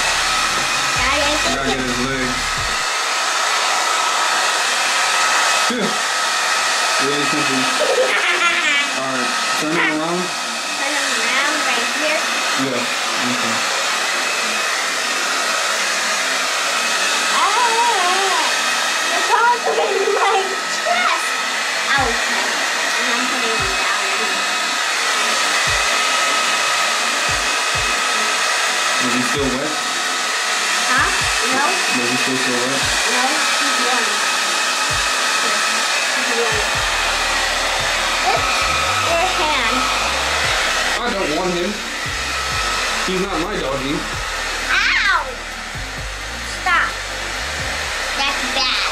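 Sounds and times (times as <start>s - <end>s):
hair dryer running: 0.0s - 48.9s.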